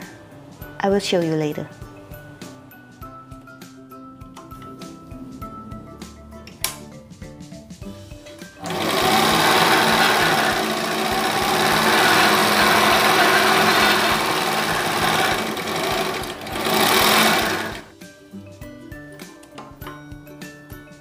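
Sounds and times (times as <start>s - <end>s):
overlock sewing machine running: 8.6s - 17.9s.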